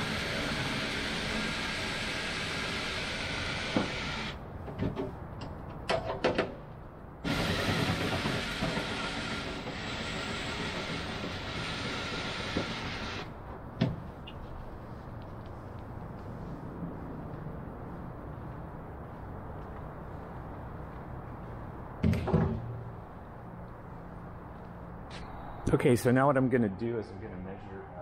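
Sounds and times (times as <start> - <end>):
cordless drill reaming wood: 0.0 - 4.4, 7.2 - 13.3
drill knocking against wood: 3.6 - 4.3, 7.2 - 13.3.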